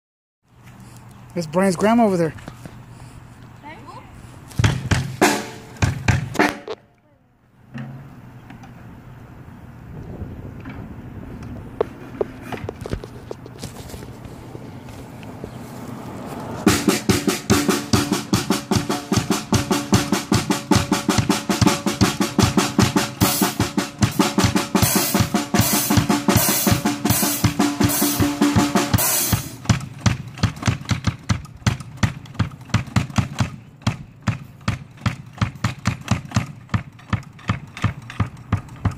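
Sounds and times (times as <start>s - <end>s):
drum kit playing: 4.6s - 6.8s, 16.6s - 38.9s.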